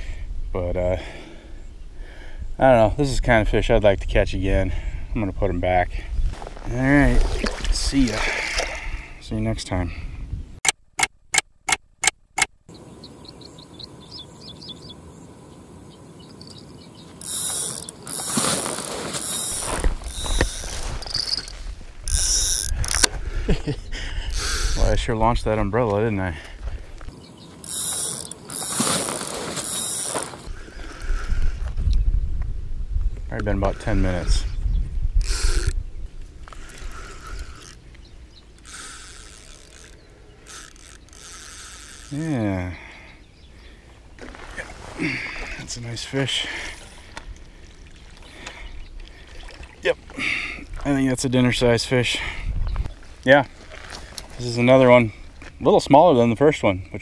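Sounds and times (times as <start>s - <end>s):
fishing reel ratcheting: 17.2s - 23.1s, 24.3s - 24.9s, 27.6s - 31.2s, 35.2s - 35.8s, 36.5s - 37.8s, 38.5s - 42.3s
rod knocks and rumbling: 17.2s - 23.2s.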